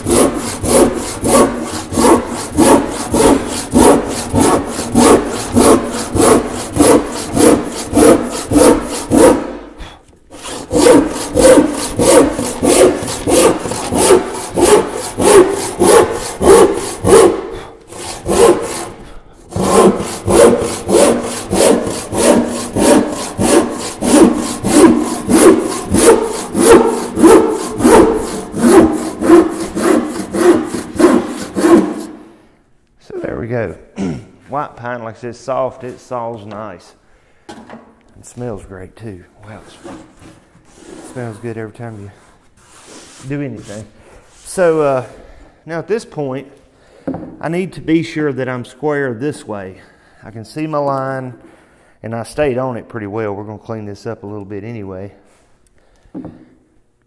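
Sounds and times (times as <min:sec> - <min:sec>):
hand saw cutting wood: 0:00.0 - 0:32.3, 0:39.8 - 0:42.1.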